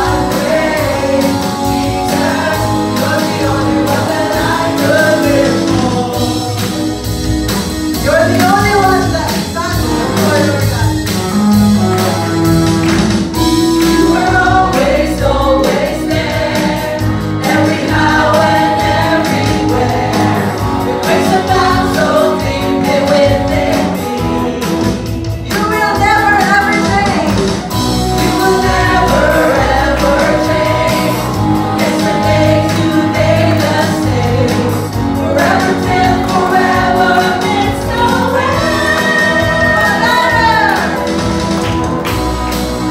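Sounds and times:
voices singing along: 0:00.0 - 0:07.2, 0:13.6 - 0:26.5, 0:27.8 - 0:41.5
amplified band with guitars: 0:00.0 - 0:42.9
woman singing into microphone: 0:32.4 - 0:41.0.

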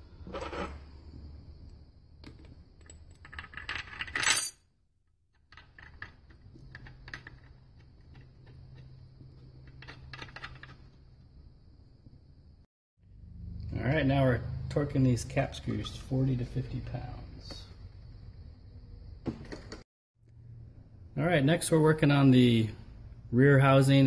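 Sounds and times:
small steel parts clinking on metal: 0:02.8 - 0:04.6.

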